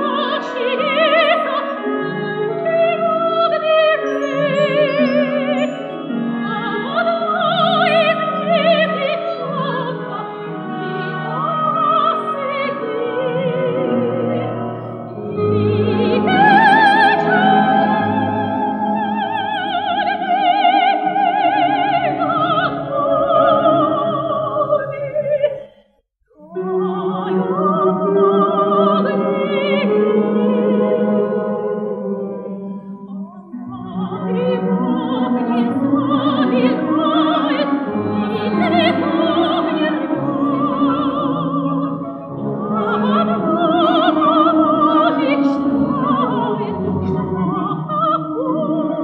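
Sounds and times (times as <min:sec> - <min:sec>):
folk instrument orchestra: 0:00.0 - 0:25.6, 0:26.4 - 0:49.0
soprano singing operatically: 0:00.0 - 0:25.7, 0:26.4 - 0:49.0.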